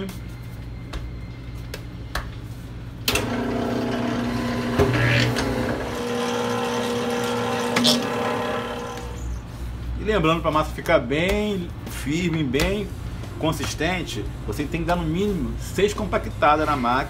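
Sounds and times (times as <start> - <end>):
pasta machine motor hum: 3.1 - 9.4.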